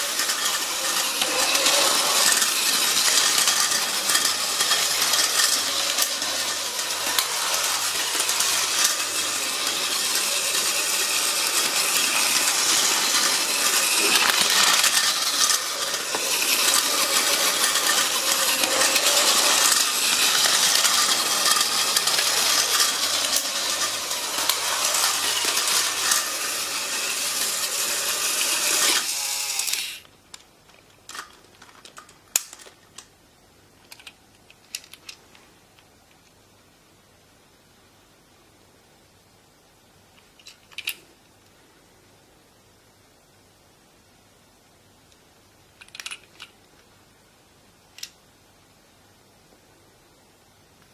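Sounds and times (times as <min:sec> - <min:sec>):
toy train whirring clatter: 0:00.0 - 0:33.1, 0:40.2 - 0:41.0, 0:45.8 - 0:46.6.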